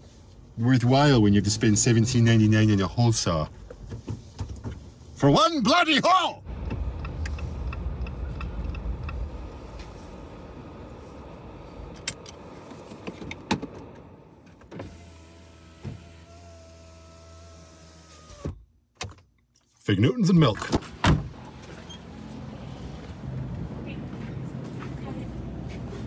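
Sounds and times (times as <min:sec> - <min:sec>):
car engine and road rumble: 0:00.0 - 0:26.0
car engine idling hum: 0:06.4 - 0:18.4.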